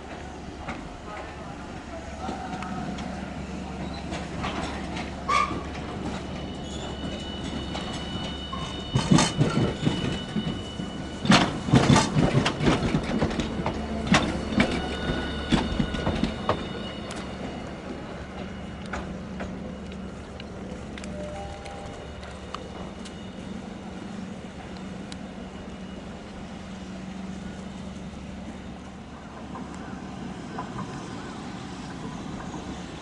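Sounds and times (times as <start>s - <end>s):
streetcar rolling over track joints: 0.0s - 33.0s
wheel squeal: 3.8s - 12.4s.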